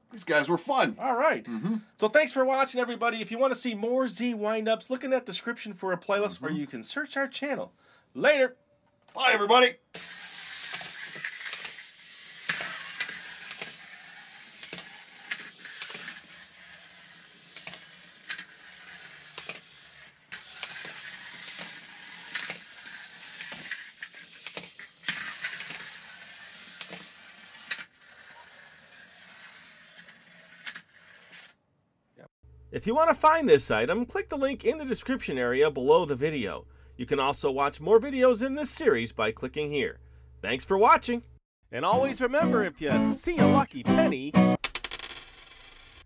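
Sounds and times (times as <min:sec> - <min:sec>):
toys clicking and knocking: 0:10.0 - 0:31.5
clockwork toy cars whirring: 0:10.0 - 0:31.6.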